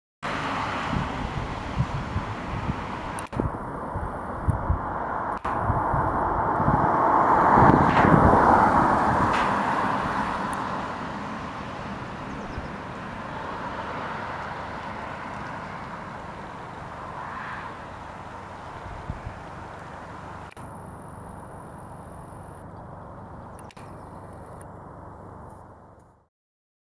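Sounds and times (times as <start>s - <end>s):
vehicle passing close by: 0.2s - 21.1s
traffic hum: 0.2s - 26.3s.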